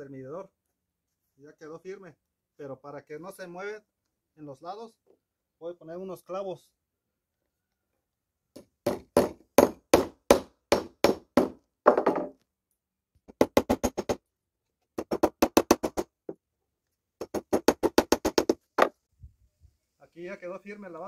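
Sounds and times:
hammer striking nails: 8.6s - 12.4s, 13.3s - 14.2s, 15.0s - 16.2s, 17.2s - 18.9s.

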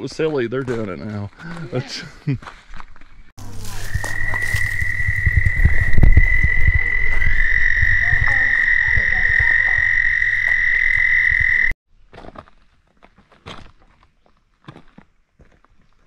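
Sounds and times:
high-pitched animal trill: 3.4s - 11.7s
low croaking pulses: 3.4s - 11.8s.

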